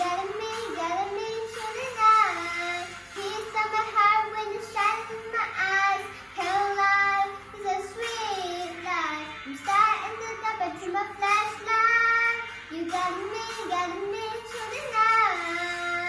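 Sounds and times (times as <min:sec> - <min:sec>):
girl singing: 0:00.0 - 0:16.0.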